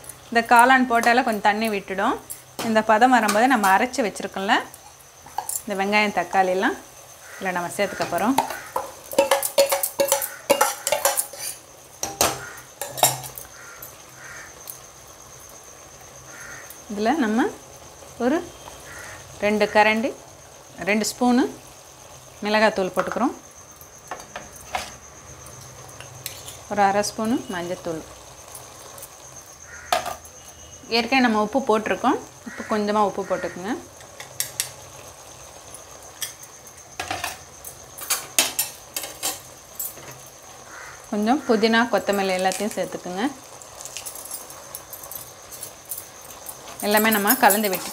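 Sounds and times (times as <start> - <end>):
faint sizzle in pan: 0.0 - 47.9
spoon knocking on metal: 8.0 - 13.4
spoon scraping a metal bowl: 8.1 - 13.4, 26.2 - 26.6.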